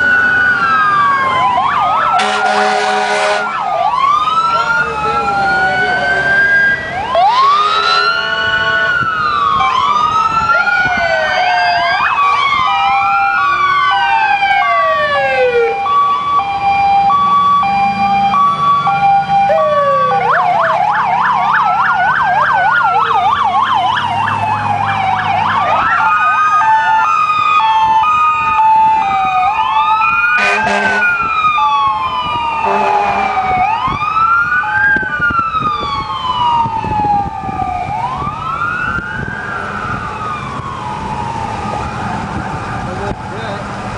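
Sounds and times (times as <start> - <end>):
fast siren yelp: 0.0 - 43.1
sirens wailing: 0.0 - 43.9
two-note hi-lo siren tone: 2.1 - 3.7, 7.2 - 9.8, 30.4 - 31.9, 32.6 - 33.6
short horn blasts: 2.2 - 3.5, 30.4 - 31.2, 32.6 - 33.3.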